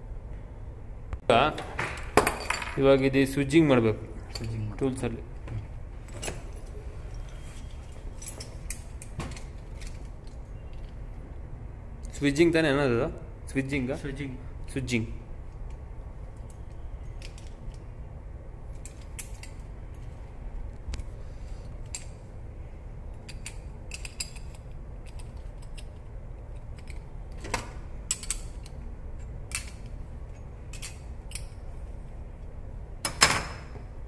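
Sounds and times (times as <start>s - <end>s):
steady low hum: 0.0s - 34.0s
metallic clicks and clinks: 23.2s - 27.1s, 28.1s - 31.6s.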